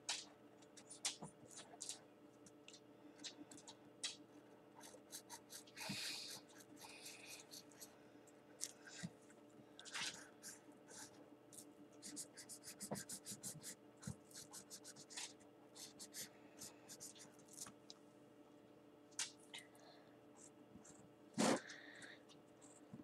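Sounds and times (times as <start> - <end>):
felt-tip marker scratching paper: 4.8 - 7.9, 12.0 - 17.6.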